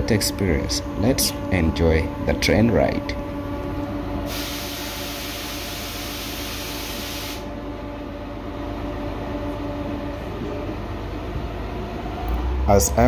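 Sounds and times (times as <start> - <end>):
train carriage running hum: 0.0 - 13.0
strong hiss: 4.3 - 7.5.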